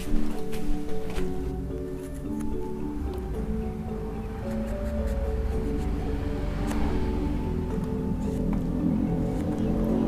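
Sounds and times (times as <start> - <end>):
held melodic notes: 0.0 - 10.0.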